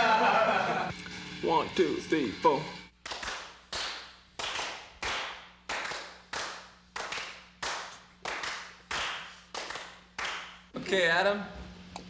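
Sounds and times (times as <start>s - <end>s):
people clapping in a steady beat: 3.0s - 10.7s.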